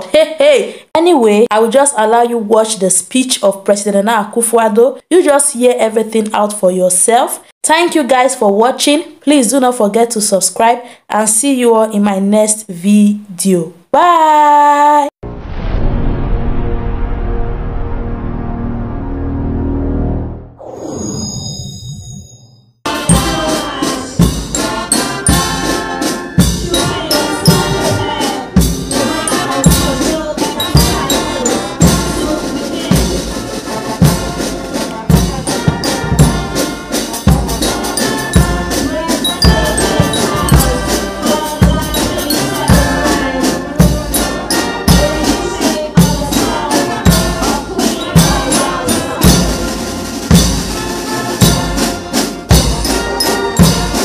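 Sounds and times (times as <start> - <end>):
bass drum beat: 22.9 - 49.7
brass band playing: 22.9 - 54.0.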